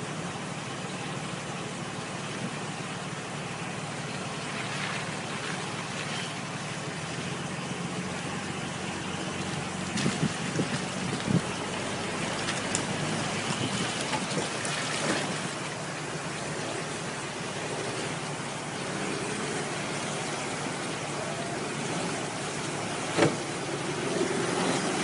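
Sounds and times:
vehicle engine running at low revs: 0:00.0 - 0:25.0
water rushing and splashing: 0:02.1 - 0:25.0
knocks and splashes: 0:04.1 - 0:06.3, 0:09.8 - 0:16.9, 0:22.1 - 0:25.0.

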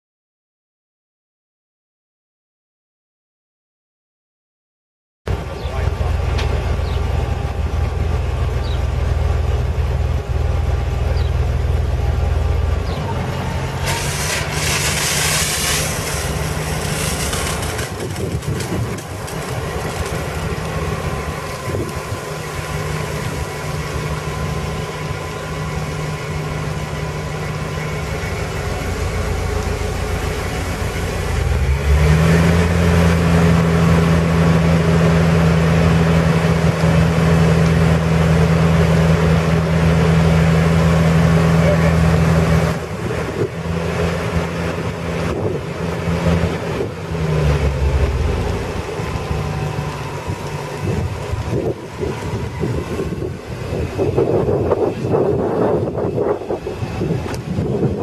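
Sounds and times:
truck engine running: 0:05.3 - 0:58.0
hose spraying water: 0:13.3 - 0:25.3
hiss: 0:13.8 - 0:18.3.

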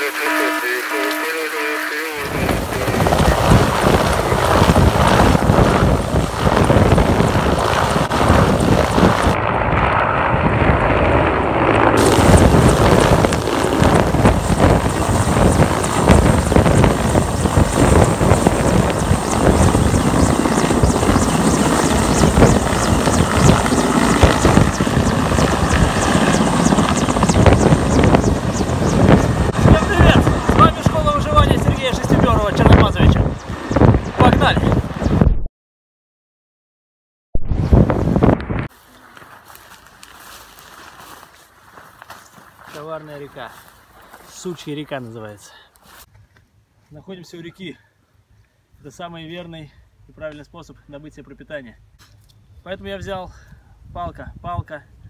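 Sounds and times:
helicopter rotor chop: 0:00.0 - 0:35.3
wind buffeting microphone: 0:02.2 - 0:35.3, 0:37.4 - 0:38.7.

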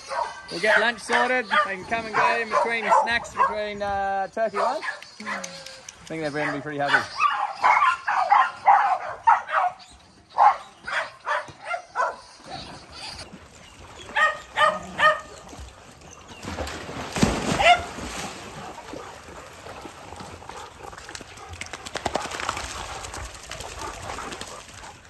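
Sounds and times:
dogs barking: 0:00.0 - 0:03.8, 0:04.4 - 0:05.6, 0:06.2 - 0:13.2, 0:14.0 - 0:15.6, 0:17.5 - 0:19.3
water splashing: 0:12.4 - 0:25.0.

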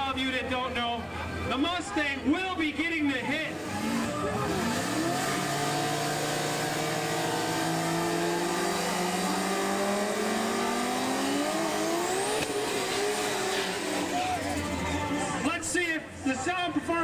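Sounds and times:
car engine at high revs: 0:03.4 - 0:15.0.

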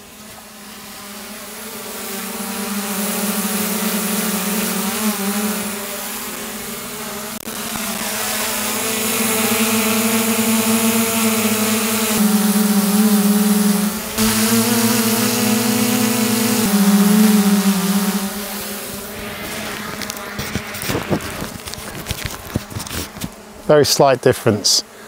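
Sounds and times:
drone propeller buzz: 0:00.0 - 0:23.8.

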